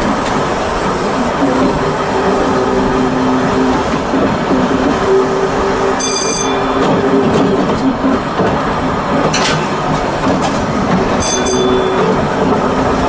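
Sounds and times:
wheels rattling on rails: 0.0s - 13.0s
brief high-pitched ring: 6.0s - 6.8s, 11.2s - 12.2s.

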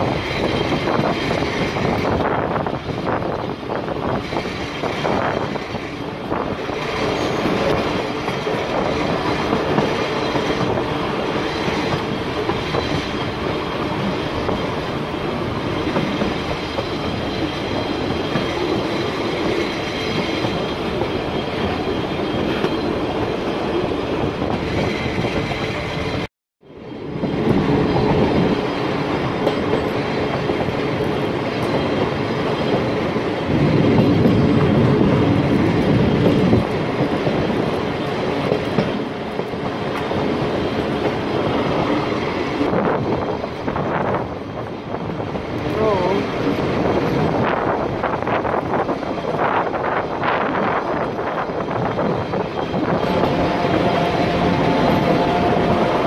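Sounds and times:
train wheels on track: 0.0s - 56.0s.

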